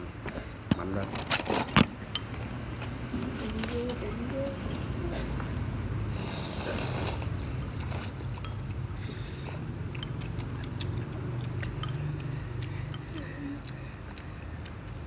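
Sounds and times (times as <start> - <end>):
person slurping noodles: 6.1 - 8.3.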